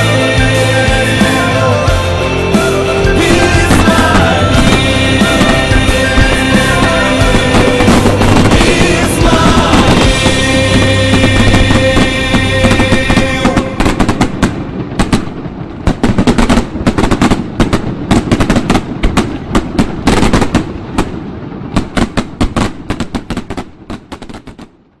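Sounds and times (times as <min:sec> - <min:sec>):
fireworks bangs and crackles: 0:00.0 - 0:25.0.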